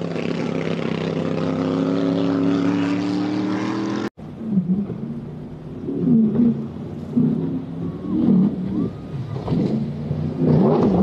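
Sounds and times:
racing powerboat engine drone: 0.0s - 11.0s
powerboat engine rumble: 4.2s - 11.0s.

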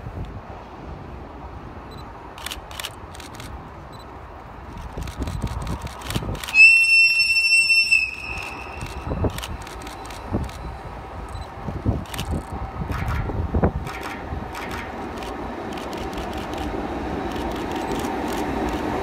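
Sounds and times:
camera shutter clicks: 2.4s - 3.6s, 4.8s - 6.6s, 8.3s - 10.7s, 12.0s - 13.2s, 13.8s - 16.7s
locomotive air whistle: 6.5s - 9.2s.

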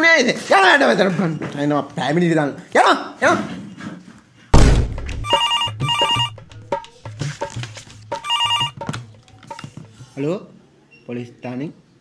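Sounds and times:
loud sharp thump: 4.6s - 5.3s
telephone ringing: 5.2s - 6.4s, 8.2s - 8.9s.

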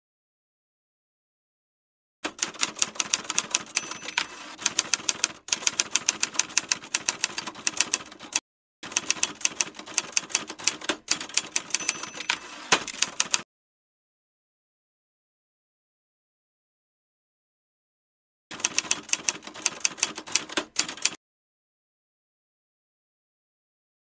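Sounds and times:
typewriter keys clacking: 2.3s - 13.4s, 18.6s - 21.2s.

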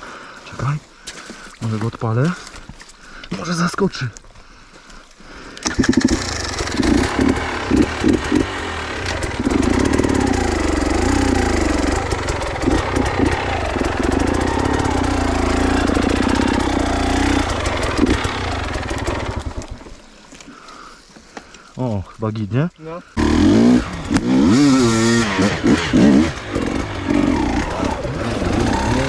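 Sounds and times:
motorcycle engine revving: 5.6s - 19.9s, 23.2s - 29.0s.

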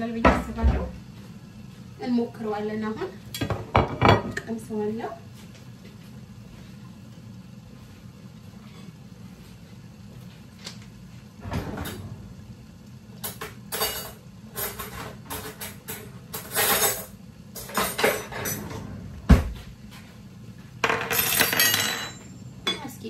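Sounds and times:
steady low hum: 0.0s - 23.0s
pots and utensils clattering: 3.3s - 4.6s, 13.2s - 19.6s, 20.8s - 23.0s.

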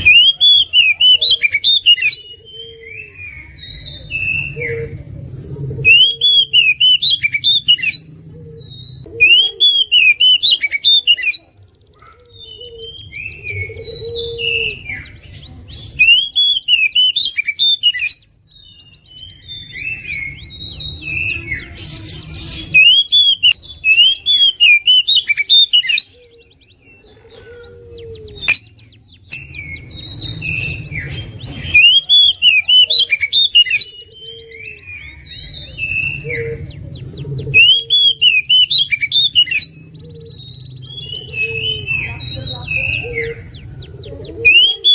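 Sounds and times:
bird singing whistled phrases: 0.0s - 5.0s, 5.9s - 11.5s, 12.1s - 27.0s, 27.9s - 44.9s
soft bird calls: 0.0s - 44.9s.

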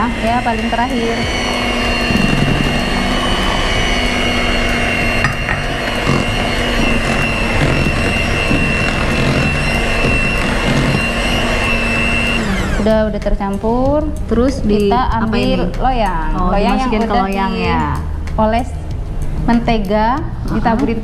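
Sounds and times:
electric hand mixer whining: 0.0s - 13.8s, 14.8s - 18.1s.

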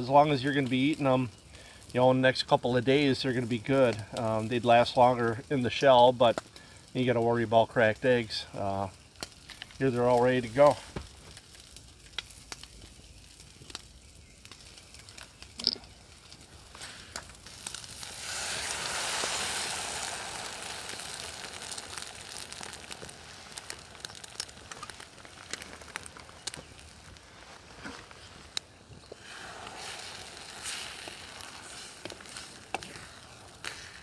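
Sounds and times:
campfire crackles and pops: 0.0s - 34.0s
eggs hissing in hot pan: 8.0s - 34.0s
pan sizzling: 8.2s - 34.0s.

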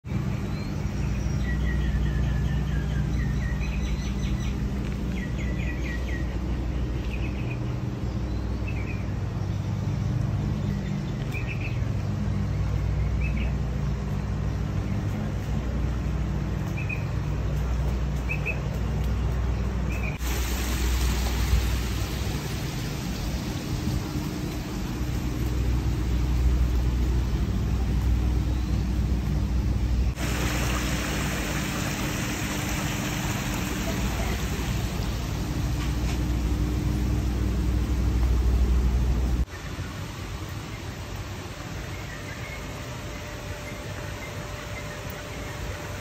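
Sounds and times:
low hum: 0.0s - 39.5s
birds chirping: 0.1s - 46.0s
steady hiss: 20.2s - 28.9s, 30.1s - 46.0s.

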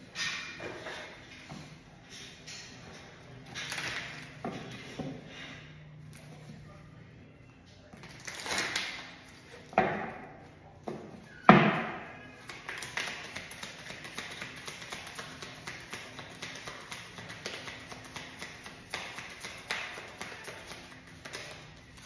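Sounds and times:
cards being shuffled: 12.4s - 22.0s.

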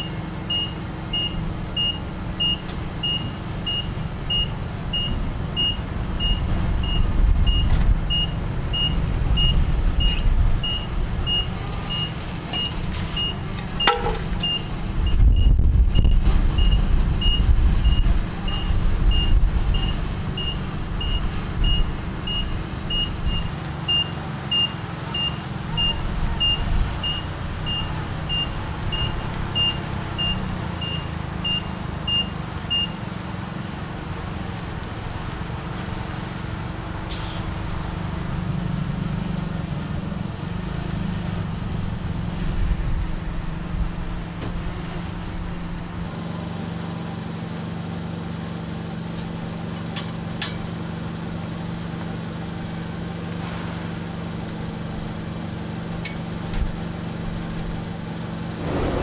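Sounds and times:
reverse alarm beeping: 0.0s - 33.0s
forklift engine running: 0.0s - 59.0s.

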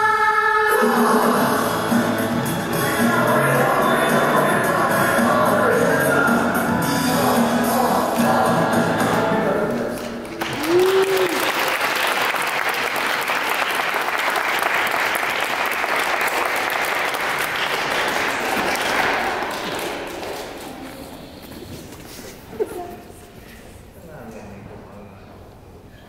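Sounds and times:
dance music: 0.6s - 10.3s
audience applause: 9.7s - 21.0s.

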